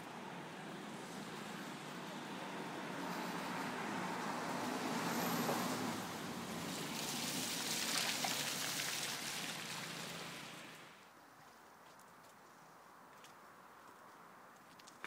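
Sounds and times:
cars passing on wet road: 0.0s - 11.0s.

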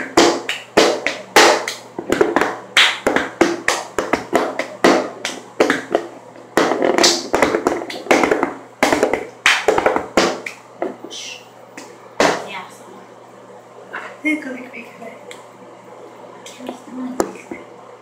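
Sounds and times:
hand claps and taps: 0.0s - 11.0s
plastic tub knocked on countertop: 0.1s - 11.0s.

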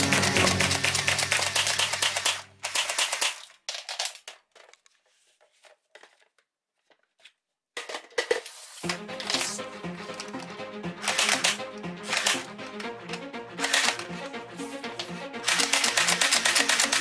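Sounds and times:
background music: 0.0s - 2.7s, 8.8s - 17.0s
toy gun clicks and knocks: 1.1s - 4.8s.

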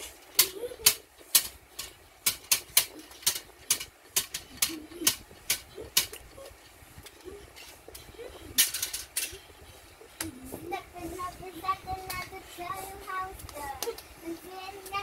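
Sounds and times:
child beatboxing: 4.4s - 6.6s, 9.3s - 15.0s.

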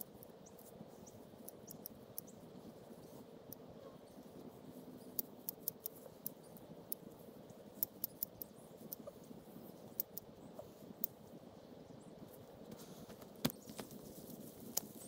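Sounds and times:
leaves rustling: 12.2s - 15.0s.

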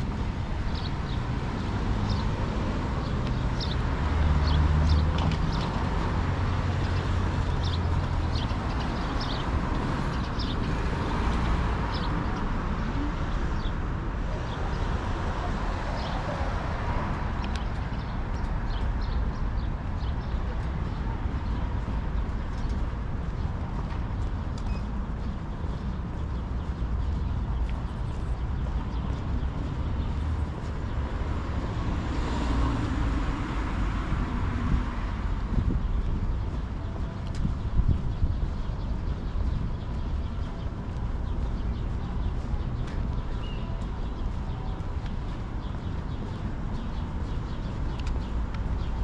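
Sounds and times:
city traffic rumble: 0.0s - 49.0s.

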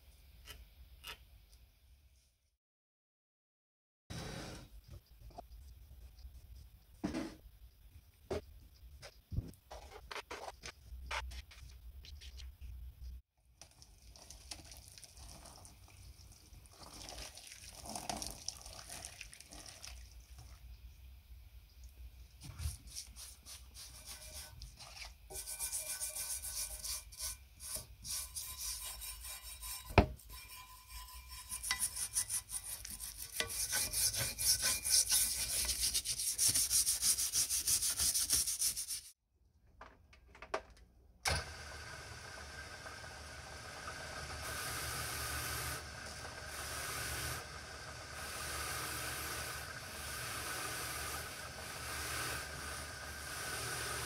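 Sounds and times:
plastic brush scrubbing metal: 22.5s - 39.2s
bench polishing wheel running: 41.4s - 54.0s.

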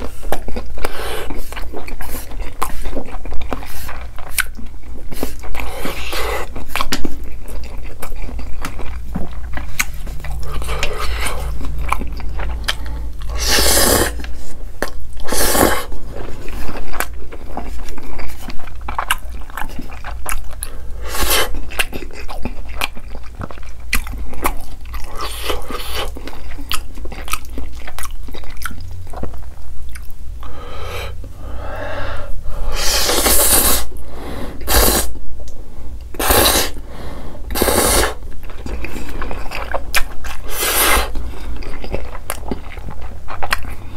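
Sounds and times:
wet chewing and mouth clicks: 0.0s - 30.2s, 37.5s - 43.9s
noodle slurping: 12.7s - 14.6s, 15.2s - 15.9s, 32.8s - 33.9s, 36.2s - 36.8s, 37.5s - 38.2s.

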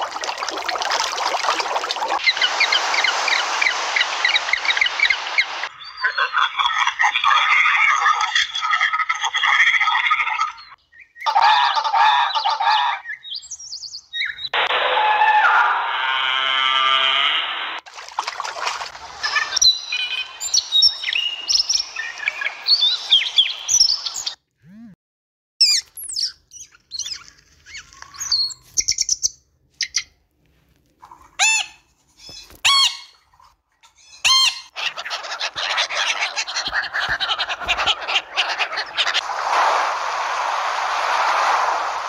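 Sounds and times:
waves breaking on a beach: 1.5s - 5.8s, 37.4s - 42.0s
steady hiss: 2.2s - 5.8s, 38.2s - 42.0s
birds chirping: 2.2s - 14.7s, 19.1s - 24.4s, 34.0s - 42.0s
macaw squawking: 31.4s - 33.2s, 33.9s - 39.2s.

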